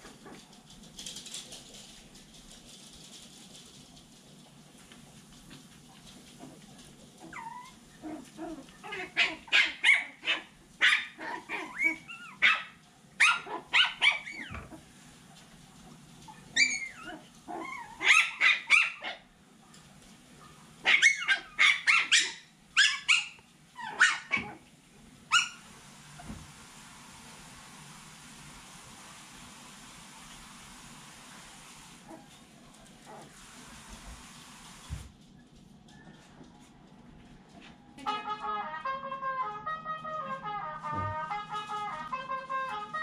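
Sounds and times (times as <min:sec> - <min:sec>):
puppies yipping and barking: 0:07.2 - 0:14.8, 0:16.3 - 0:19.3, 0:20.8 - 0:24.6, 0:25.3 - 0:26.4.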